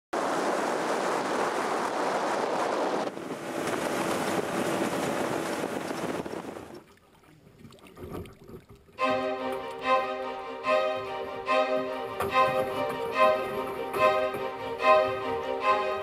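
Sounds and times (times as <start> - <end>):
water noise: 0.1 - 16.0
wind on microphone: 0.2 - 7.0
motorboat outboard motor hum: 0.3 - 10.2.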